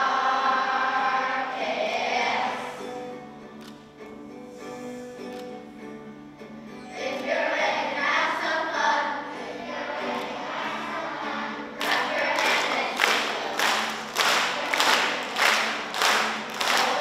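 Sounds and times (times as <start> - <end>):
children singing: 0.0 - 3.4, 6.9 - 17.0.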